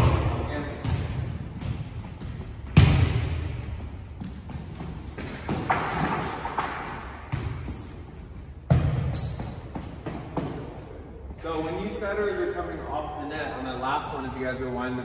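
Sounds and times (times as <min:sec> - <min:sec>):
volleyballs struck and bouncing: 0:00.0 - 0:10.8
sneaker squeaks: 0:04.2 - 0:05.6, 0:06.4 - 0:10.7.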